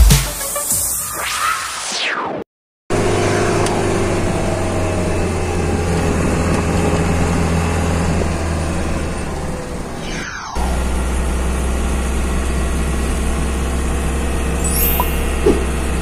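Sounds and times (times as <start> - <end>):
bus engine droning: 2.9 - 10.0, 10.6 - 14.6
road noise: 2.9 - 16.0.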